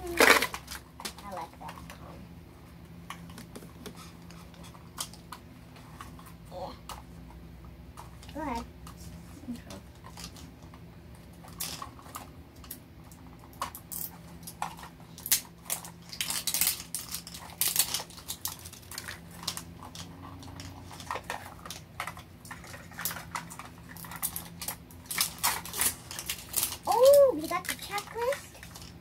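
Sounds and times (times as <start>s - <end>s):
foil wrapping crinkling: 15.1s - 21.9s, 22.5s - 29.0s.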